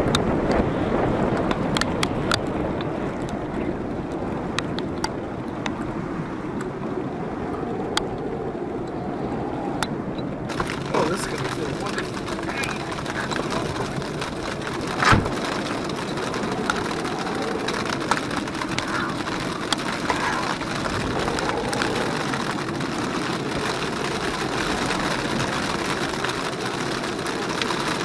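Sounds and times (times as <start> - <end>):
rain on a car roof: 0.0 - 28.0
scattered taps: 10.5 - 22.8
car engine idling: 10.5 - 27.8.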